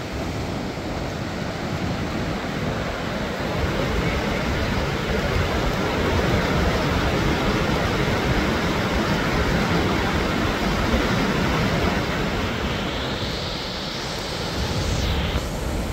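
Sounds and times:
water rushing over rocks: 0.0s - 15.9s
high hiss rising in pitch: 8.9s - 15.9s.

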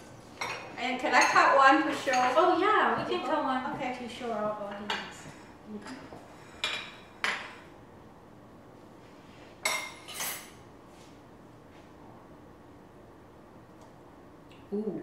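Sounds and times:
cutlery clinking on plates: 9.6s - 10.6s.

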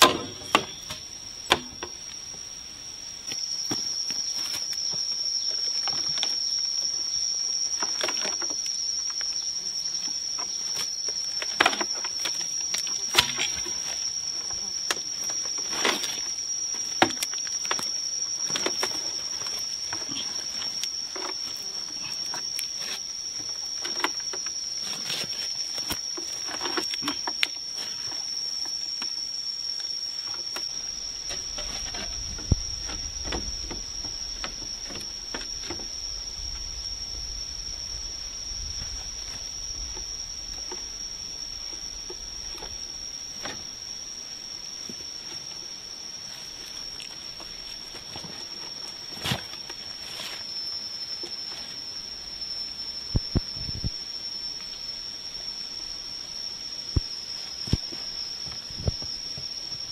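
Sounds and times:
bamboo poles knocking and rustling: 0.0s - 2.4s, 7.7s - 9.4s, 10.1s - 29.2s, 30.2s - 36.7s, 38.7s - 43.8s, 46.2s - 50.6s
high-pitched insect drone: 0.0s - 59.9s.

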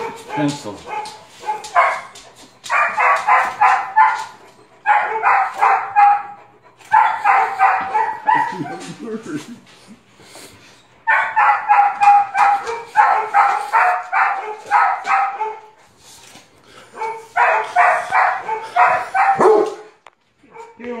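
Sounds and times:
dog barking in high yips: 0.0s - 2.1s, 2.7s - 6.3s, 6.9s - 8.7s, 11.1s - 15.6s, 17.0s - 19.9s.

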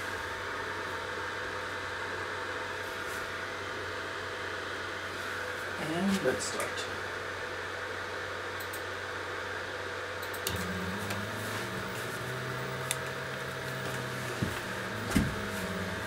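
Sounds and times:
steady fan hum: 0.0s - 16.0s
stepper motors whining: 10.4s - 16.0s.

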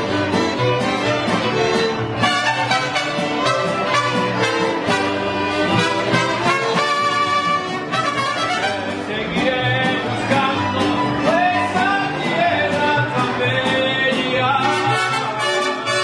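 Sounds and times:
violins playing melody: 0.0s - 9.0s
mariachi band playing: 0.0s - 16.0s
strummed guitars: 0.0s - 16.0s.

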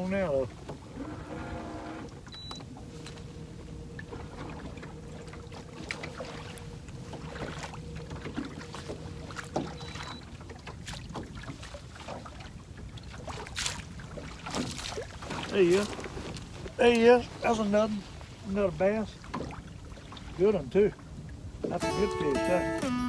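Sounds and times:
water lapping at hull: 0.0s - 22.8s
faint steady hum: 0.2s - 13.2s.

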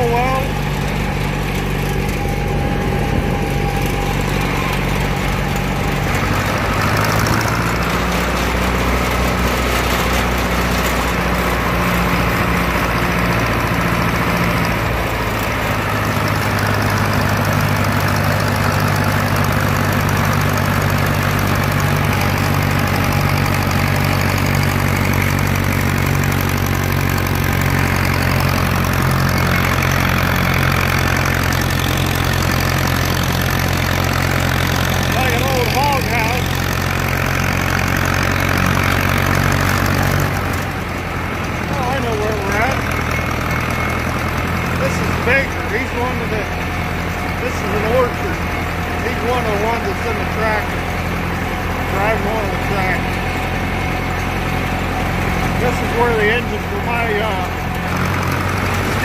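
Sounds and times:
tractor engine running: 0.0s - 59.0s.

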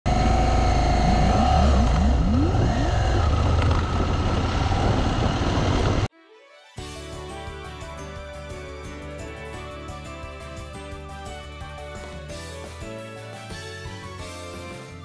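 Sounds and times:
vehicle engine revving: 0.1s - 6.1s.

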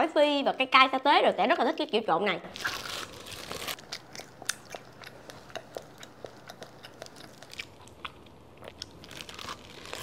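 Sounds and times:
close-up chewing: 2.7s - 10.0s.

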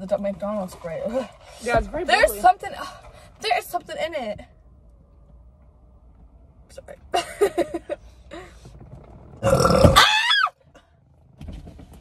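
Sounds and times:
person burping: 9.4s - 10.1s.

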